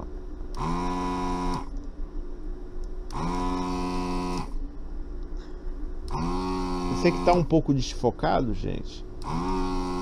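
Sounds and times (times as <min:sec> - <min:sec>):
desoldering vacuum pump buzzing: 0:00.0 - 0:01.8, 0:02.9 - 0:04.7, 0:06.0 - 0:07.7, 0:08.6 - 0:10.0
low steady hum: 0:00.0 - 0:10.0.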